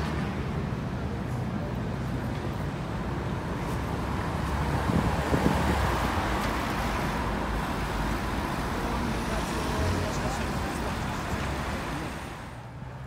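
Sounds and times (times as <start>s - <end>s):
road noise: 0.0s - 13.0s.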